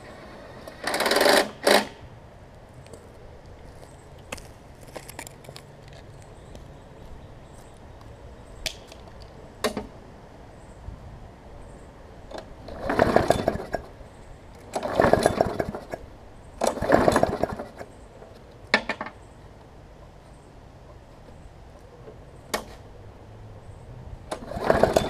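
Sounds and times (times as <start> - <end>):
recoil starter pulls cranking engine: 0.7 - 1.9, 12.6 - 13.9, 14.7 - 16.0, 16.6 - 17.9, 24.3 - 25.0.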